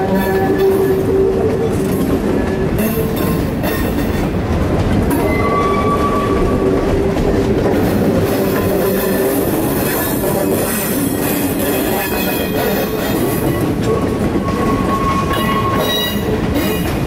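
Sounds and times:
train wheels rumbling on rail: 0.0 - 17.0
wheels clacking over rail joints: 0.0 - 17.0.

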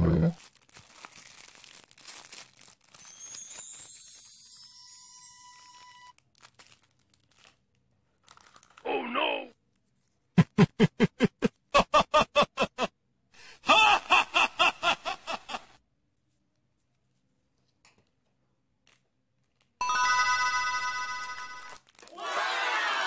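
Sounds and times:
bell-like chime: 3.0 - 6.1, 19.8 - 21.8
cartoonish laughing sound effect: 10.4 - 12.9, 13.6 - 15.8.

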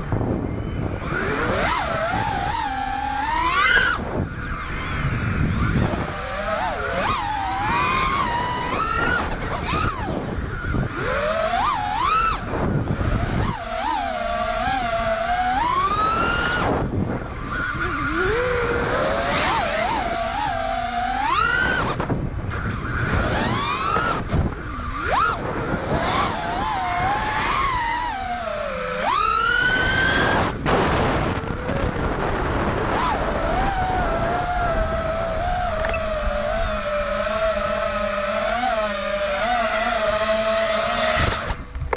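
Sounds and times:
drone motors whining: 0.0 - 41.9.

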